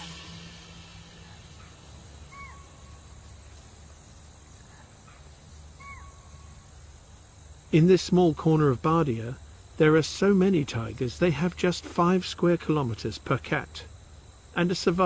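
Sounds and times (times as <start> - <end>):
short bird call: 0.0 - 3.1, 5.0 - 6.5
pulsing insect chorus: 0.0 - 15.0.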